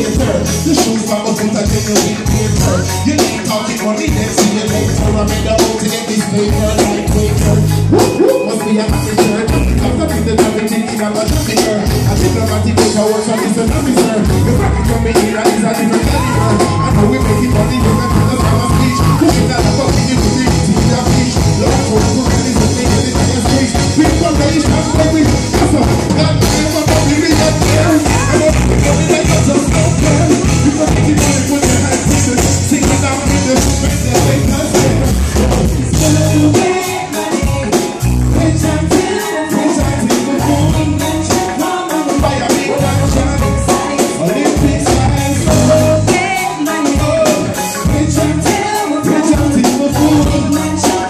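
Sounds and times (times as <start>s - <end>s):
pulsing bass line: 0.0s - 0.8s, 1.5s - 3.2s, 4.1s - 5.7s, 6.3s - 10.5s, 11.9s - 13.0s, 13.7s - 15.4s, 16.0s - 36.7s, 37.4s - 39.0s, 39.9s - 41.5s, 42.2s - 43.8s, 44.6s - 46.2s, 47.8s - 48.5s, 49.9s - 50.8s
live reggae band: 0.0s - 51.0s
person singing: 0.0s - 51.0s.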